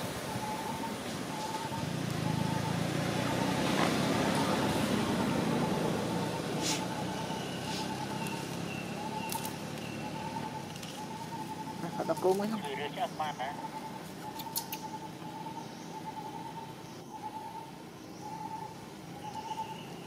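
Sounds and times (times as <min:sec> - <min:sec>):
vehicle passing rumble: 0:00.0 - 0:17.2.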